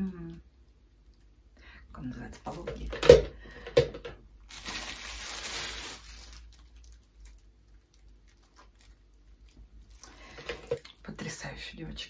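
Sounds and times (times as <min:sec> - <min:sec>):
plastic bag rustling: 0:04.4 - 0:10.9.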